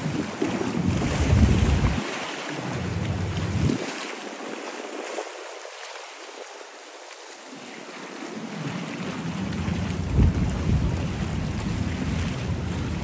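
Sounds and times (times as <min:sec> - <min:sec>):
wind buffeting microphone: 0:00.0 - 0:04.5, 0:09.0 - 0:13.0
sea waves rushing: 0:00.0 - 0:13.0.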